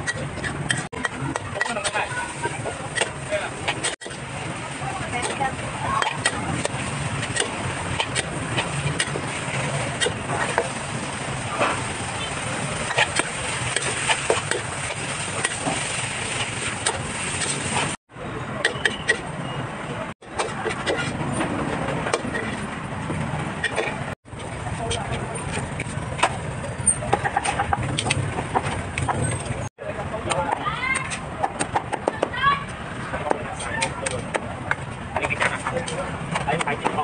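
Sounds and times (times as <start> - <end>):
background chatter: 1.0 - 15.6, 29.1 - 37.0.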